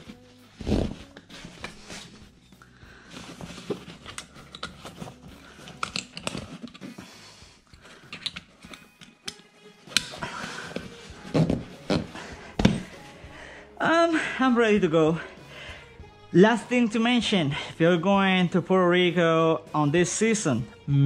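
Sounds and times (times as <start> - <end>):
fabric rustling: 0.0 - 5.3, 10.2 - 13.2
strap pulled through buckle: 3.1 - 7.1
buckle clicking: 4.0 - 5.0, 5.6 - 6.9, 7.8 - 10.2.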